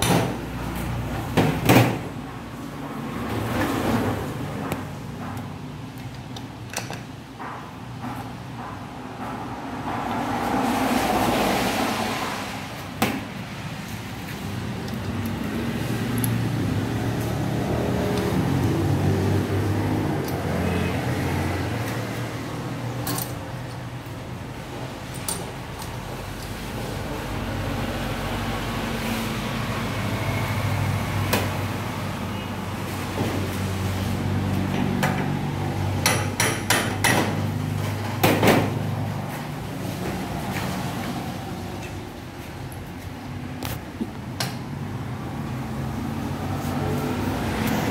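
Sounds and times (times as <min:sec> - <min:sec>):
hammer tapping on metal: 0:36.0 - 0:37.4.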